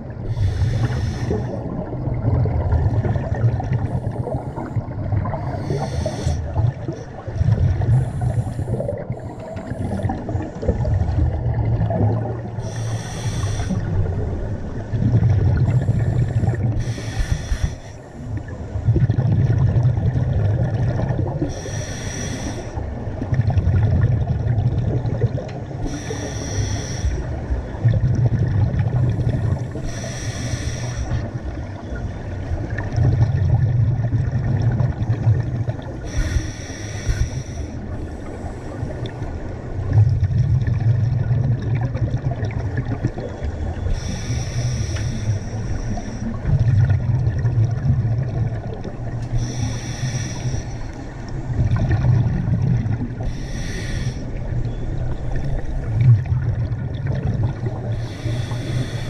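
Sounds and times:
low bubbling rumble: 0.0s - 17.7s, 18.3s - 21.6s, 22.8s - 25.9s, 27.2s - 30.0s, 31.1s - 36.4s, 37.1s - 50.0s, 50.8s - 59.0s
diver breathing through regulator: 0.2s - 1.7s, 5.5s - 6.6s, 7.9s - 10.9s, 12.6s - 14.0s, 15.6s - 18.3s, 21.4s - 22.9s, 25.8s - 27.3s, 28.9s - 31.3s, 36.0s - 39.2s, 43.6s - 46.5s, 49.2s - 51.2s, 53.2s - 54.6s, 57.7s - 59.0s.

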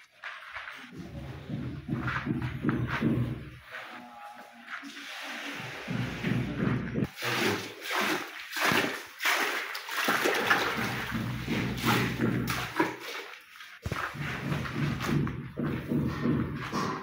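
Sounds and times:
wet plaster splashing and sloshing: 4.7s - 17.0s.

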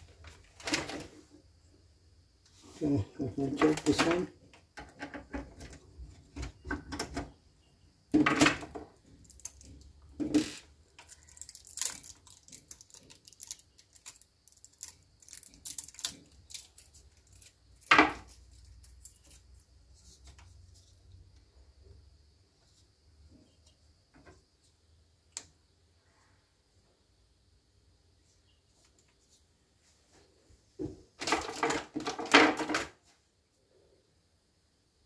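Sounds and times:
hands handling small objects: 9.0s - 21.0s.

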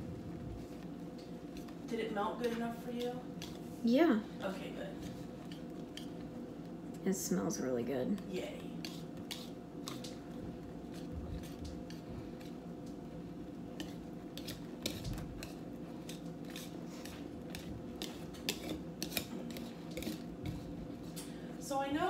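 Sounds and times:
steady low hum: 0.0s - 22.0s
whisk clicking against bowl: 5.4s - 6.3s, 8.2s - 10.2s, 13.8s - 20.7s.

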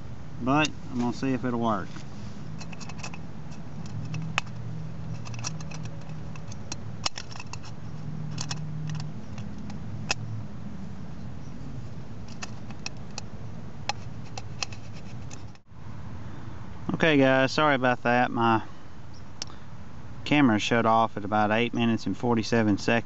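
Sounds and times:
low steady hum: 0.0s - 23.0s
aluminium can clicking and crinkling: 2.6s - 10.2s, 12.3s - 13.3s, 13.9s - 15.6s.

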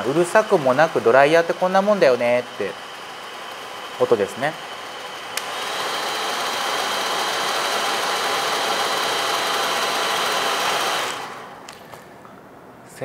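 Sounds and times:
hair dryer running: 0.0s - 12.0s
hair dryer switch click: 5.3s - 5.6s, 11.6s - 12.0s.

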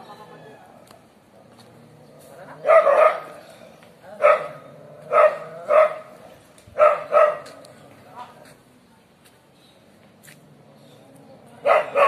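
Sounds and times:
dogs barking: 2.4s - 7.8s, 11.6s - 12.0s.

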